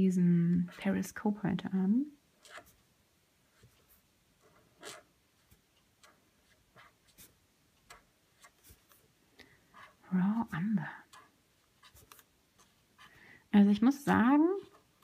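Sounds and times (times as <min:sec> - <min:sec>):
brush pen scratching paper: 0:02.4 - 0:02.8, 0:03.5 - 0:09.0, 0:09.6 - 0:15.0.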